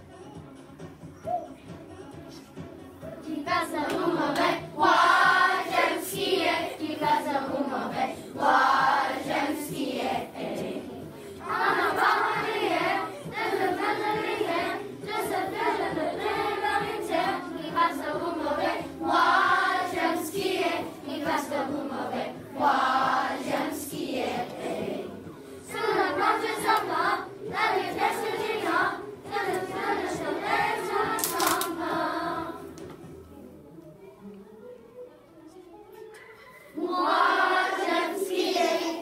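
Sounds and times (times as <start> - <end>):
children singing together: 3.2 - 32.7, 36.4 - 39.0.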